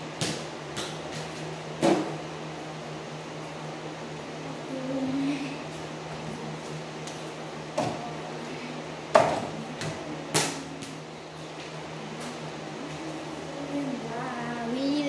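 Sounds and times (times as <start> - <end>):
basketball knocking against hoop: 9.1 - 10.6.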